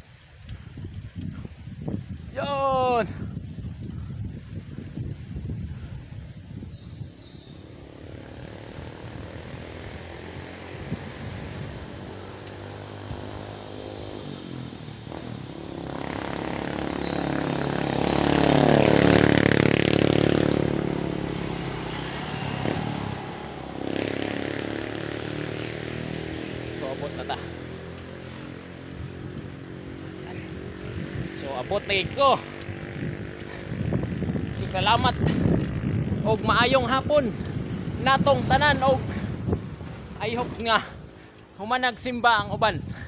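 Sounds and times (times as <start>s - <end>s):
motorcycle engine passing by: 3.9s - 41.3s.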